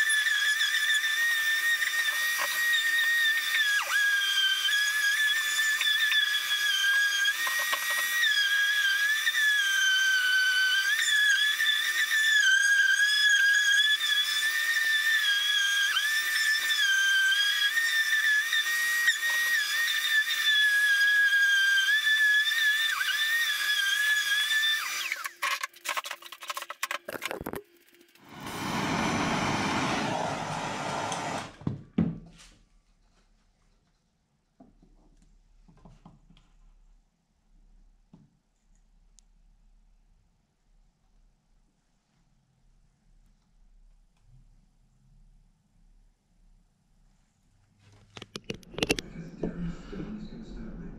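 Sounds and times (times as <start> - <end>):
rushing noise: 28.2 - 31.4
orbital sander whining on wood: 28.2 - 31.6.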